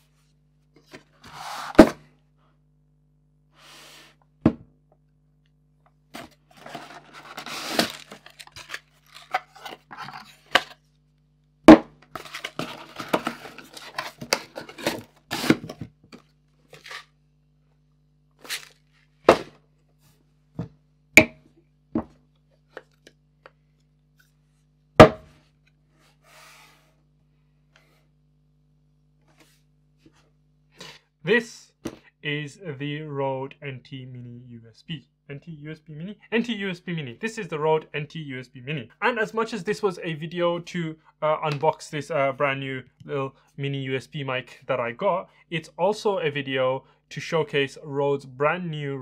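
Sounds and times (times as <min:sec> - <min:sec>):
faint low hum: 0:04.2 - 0:49.0
packaging crinkling and tearing: 0:06.6 - 0:09.5.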